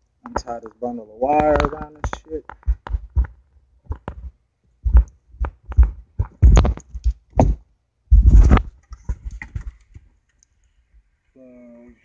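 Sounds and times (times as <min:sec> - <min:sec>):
knocks and thumps of wiring: 0:00.2 - 0:10.1
rustling scrapes: 0:08.1 - 0:11.0.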